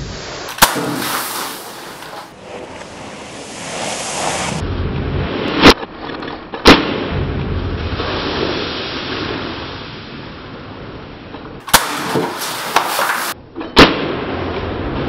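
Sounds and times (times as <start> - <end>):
steady background hiss: 0.0 - 4.6, 8.0 - 13.4
air pistol shots: 0.5 - 2.3, 6.6 - 7.2, 11.6 - 14.4.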